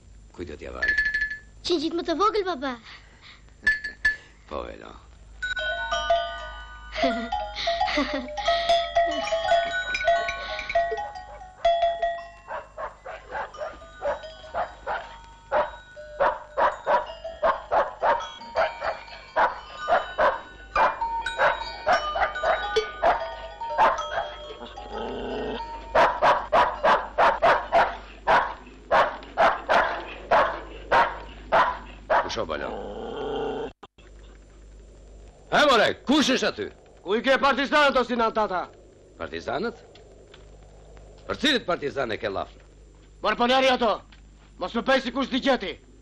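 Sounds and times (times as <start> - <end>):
dog barking: 12.5 - 24.4, 25.9 - 32.4.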